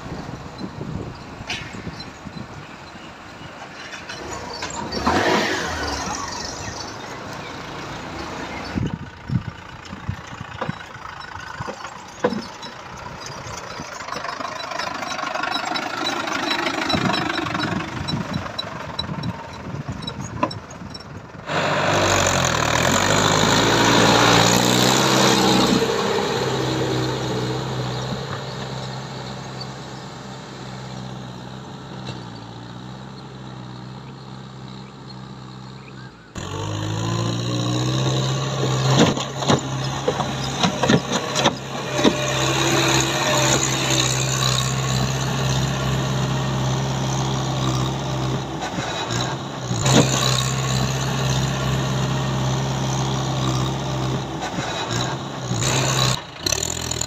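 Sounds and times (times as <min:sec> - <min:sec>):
tractor diesel engine running: 0:00.0 - 0:57.0
sharp clicks and knocks: 0:38.8 - 0:42.4.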